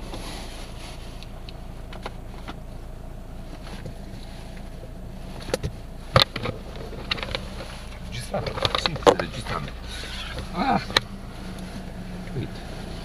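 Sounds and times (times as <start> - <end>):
car driving rumble: 0.0 - 13.0.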